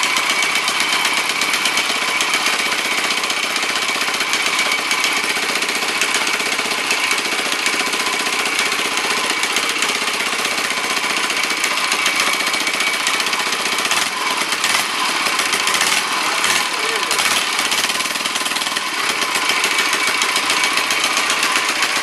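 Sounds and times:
single-cylinder engine running: 0.0s - 22.0s.

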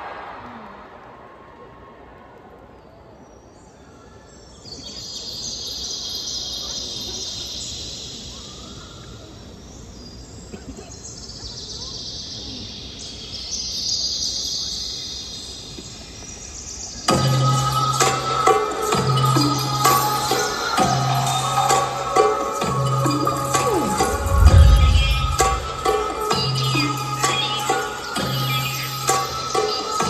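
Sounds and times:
crowd screaming: 0.0s - 2.8s, 23.4s - 26.6s
faint bird chirps: 2.6s - 17.1s.

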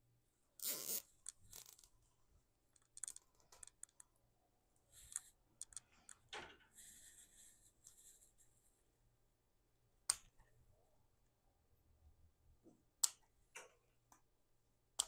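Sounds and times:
cable tie zip: 0.6s - 1.8s.

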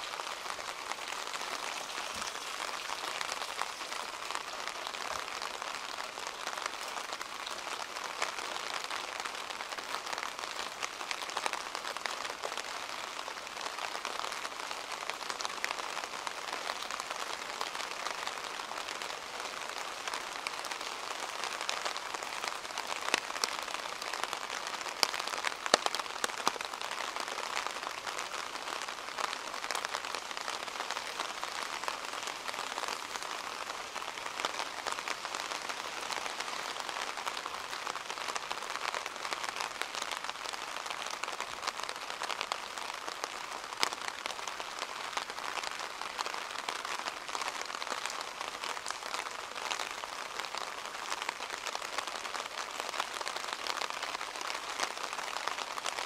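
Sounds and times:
rain falling: 0.0s - 56.0s
water drips: 1.2s - 4.8s.

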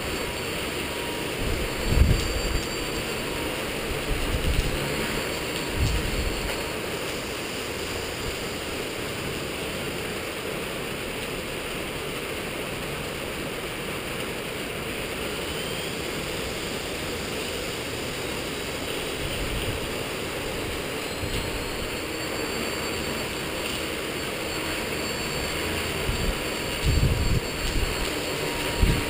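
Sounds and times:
rc helicopter flying: 0.0s - 11.6s, 14.3s - 29.0s
rain and wind hiss: 0.0s - 29.0s.

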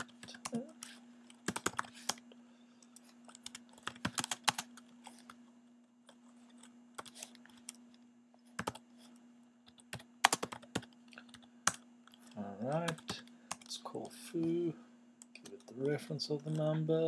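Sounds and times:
faint steady hum: 0.0s - 17.0s
typing on computer keyboard: 1.4s - 2.2s, 3.3s - 4.8s, 9.7s - 11.8s.

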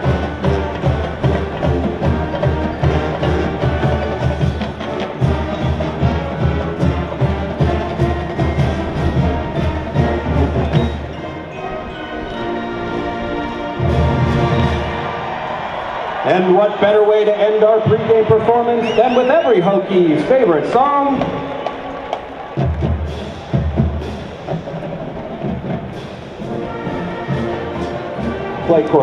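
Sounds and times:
steady drum beat: 0.0s - 11.2s, 21.1s - 28.8s
held brass chords: 0.0s - 18.8s, 19.6s - 29.0s
marching band playing: 0.0s - 29.0s.

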